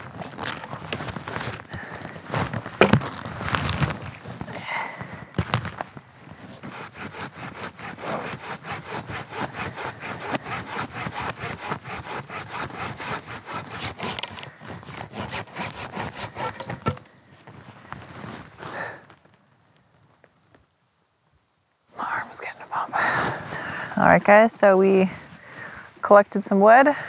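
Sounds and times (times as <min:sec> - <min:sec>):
wood cracking: 0:05.4 - 0:17.1
hand saw cutting log: 0:06.4 - 0:17.0.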